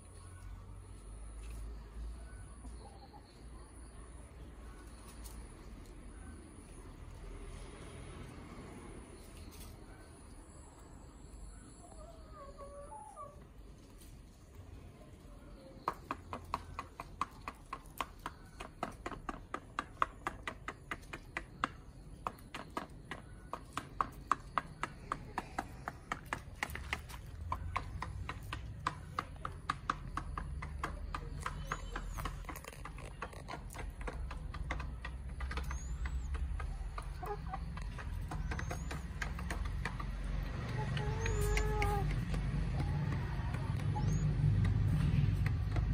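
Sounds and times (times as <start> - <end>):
beaks tapping on plastic dish: 15.9 - 40.3.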